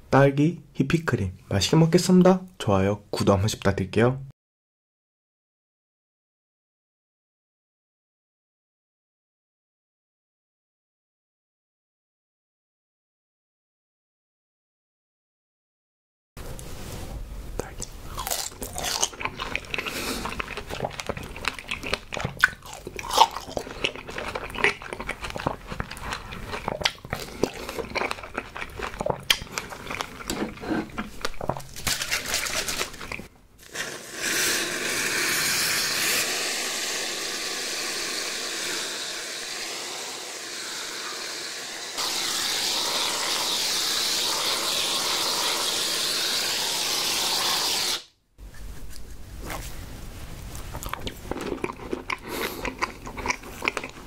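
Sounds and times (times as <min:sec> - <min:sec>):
chewing strawberries: 0:17.8 - 0:31.8, 0:50.4 - 0:54.0
aerosol whipped cream hissing: 0:33.6 - 0:48.1.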